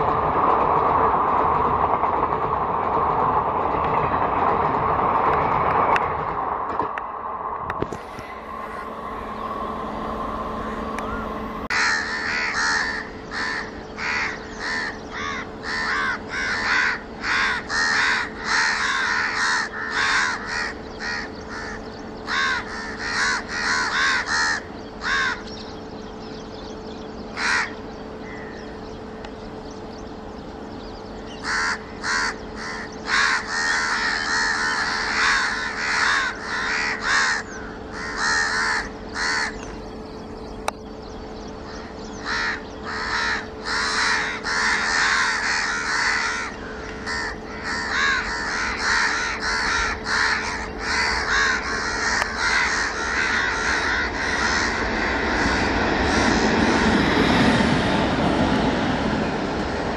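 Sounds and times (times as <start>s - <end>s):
faint steady hum: 6.9s - 59.9s
crows cawing: 9.7s - 25.5s, 27.4s - 28.7s, 31.4s - 39.8s, 41.7s - 57.1s.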